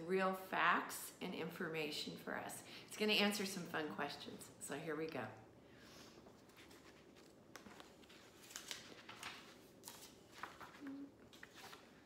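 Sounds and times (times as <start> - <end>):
book pages flipping: 6.2 - 12.0.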